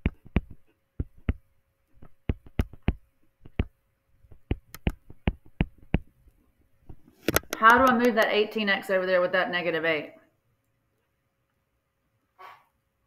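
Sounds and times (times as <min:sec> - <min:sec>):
stylus tapping on screen: 0:00.0 - 0:06.2, 0:06.8 - 0:08.4.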